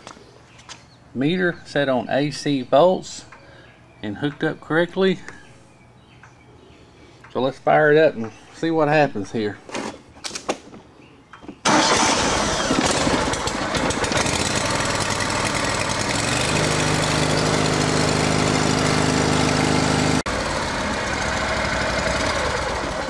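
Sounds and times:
mower engine starting and running: 11.6s - 23.0s.

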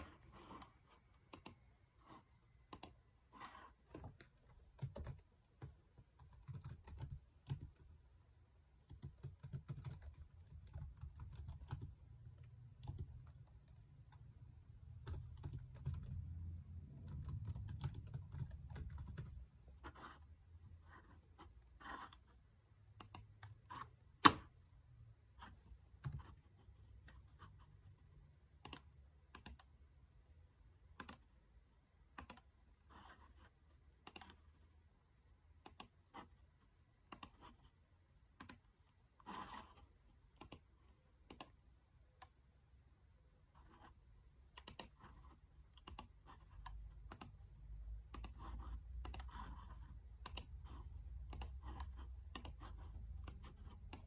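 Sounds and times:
laptop keys clicking: 1.3s - 1.6s, 2.7s - 3.0s, 4.0s - 7.9s, 8.8s - 14.3s, 15.0s - 16.3s, 16.9s - 19.4s, 23.0s - 23.6s, 28.6s - 29.7s, 32.1s - 32.5s, 34.0s - 34.4s, 37.1s - 37.5s, 38.4s - 38.6s, 40.4s - 41.6s, 44.5s - 45.1s, 45.7s - 47.4s, 48.0s - 49.5s, 50.2s - 54.0s
computer mouse clicks: 1.3s - 7.9s, 23.0s - 24.5s, 28.6s - 29.7s, 30.9s - 31.3s, 32.1s - 33.3s, 34.0s - 34.5s, 35.6s - 36.0s, 37.0s - 37.6s, 38.3s - 41.6s, 44.5s - 54.0s.

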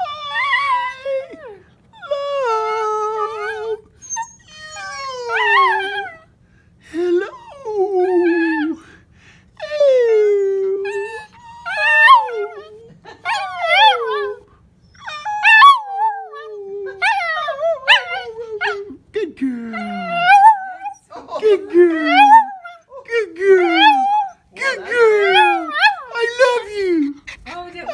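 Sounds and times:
dog howling: 0.0s - 6.2s, 9.8s - 14.4s, 15.0s - 18.9s, 19.8s - 21.0s, 21.9s - 26.6s.

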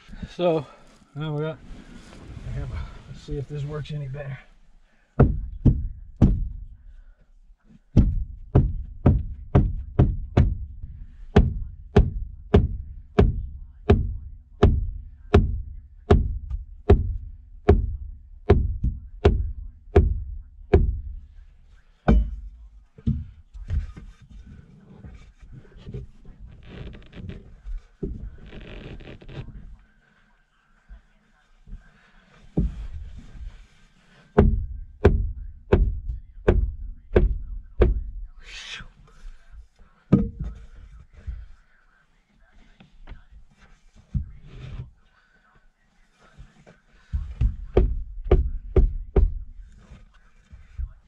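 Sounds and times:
shuffling: 0.0s - 11.7s, 21.1s - 37.1s, 38.3s - 51.0s
feet kicking a panel: 5.2s - 6.7s, 7.9s - 21.2s, 22.1s - 24.2s, 34.4s - 38.2s, 40.1s - 41.4s, 47.0s - 49.6s.

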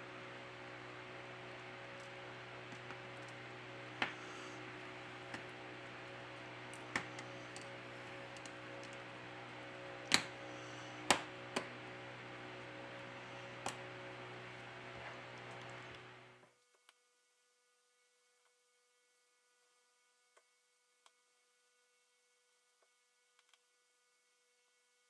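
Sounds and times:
steady low hum: 0.0s - 16.5s.

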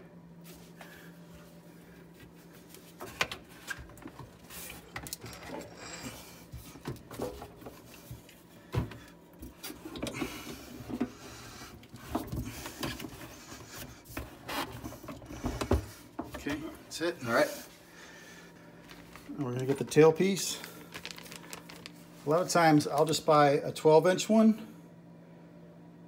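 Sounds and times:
rubber hose rubbing and scraping: 9.6s - 15.7s.

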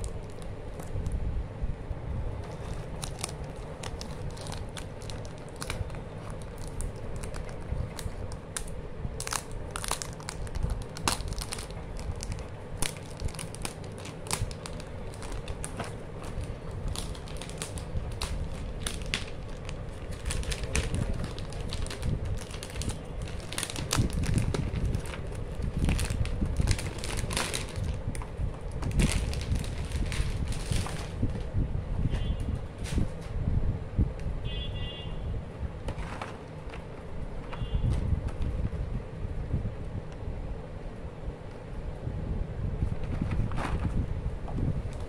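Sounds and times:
plastic wrap crinkling: 0.0s - 1.2s, 2.4s - 31.5s.

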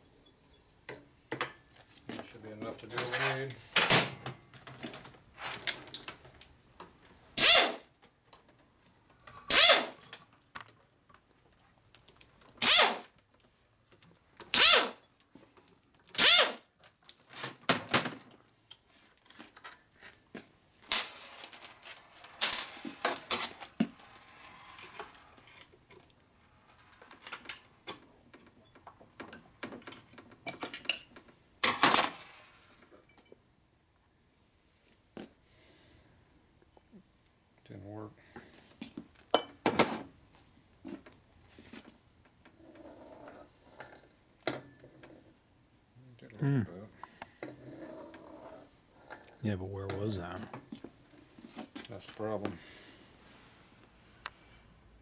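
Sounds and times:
air tool bursts: 7.4s - 7.8s, 9.5s - 10.0s, 12.6s - 13.1s, 14.5s - 15.0s, 16.2s - 16.6s.

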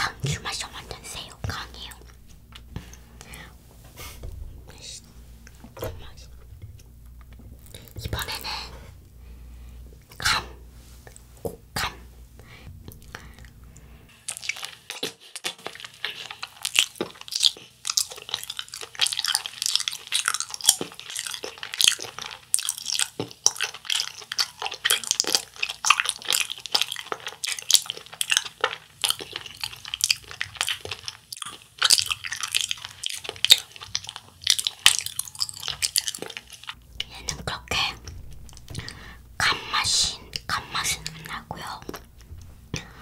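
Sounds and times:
close chewing mouth clicks: 12.9s - 39.0s.

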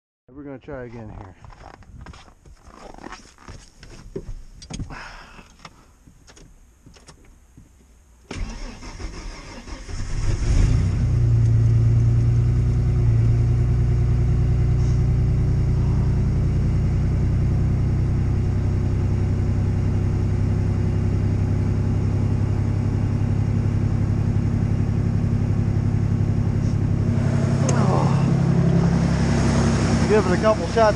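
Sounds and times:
truck engine idling: 13.6s - 18.7s, 22.1s - 30.9s.

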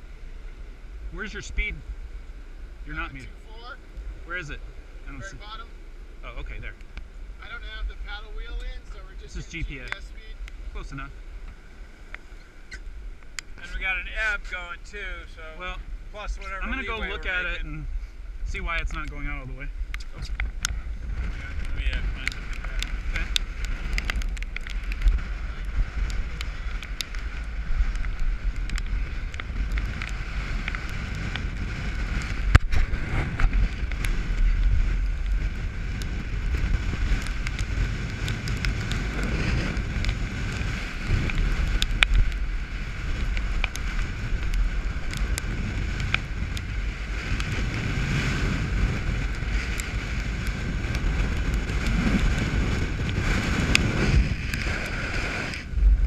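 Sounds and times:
wind buffeting microphone: 0.0s - 56.0s
sharp snaps and knocks: 19.9s - 20.8s, 21.6s - 46.7s, 49.0s - 55.6s
sail flapping: 20.1s - 56.0s.

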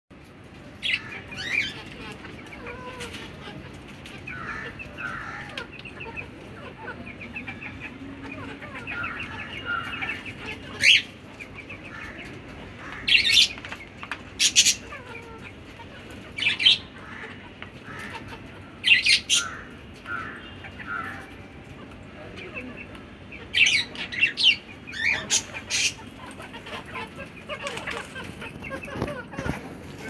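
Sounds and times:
chickens clucking: 0.2s - 30.0s
chicken squawks: 14.3s - 30.0s.

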